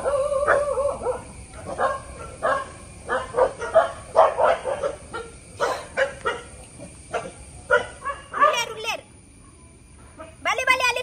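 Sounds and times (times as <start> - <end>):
dog barking and yipping: 0.0 - 6.5, 7.1 - 8.8.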